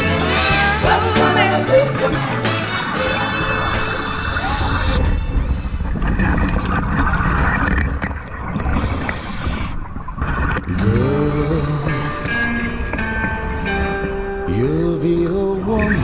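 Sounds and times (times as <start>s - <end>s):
song: 0.0s - 5.7s, 10.7s - 16.0s
regulator breathing and bubbles: 2.0s - 14.4s.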